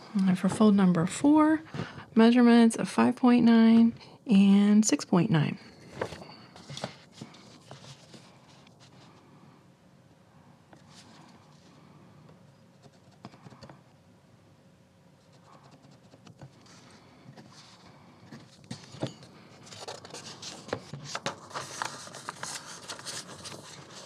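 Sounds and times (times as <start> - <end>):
pencil scratching and tapping: 12.8 - 13.8, 15.2 - 16.8
paper rustling and clicks: 19.7 - 24.0.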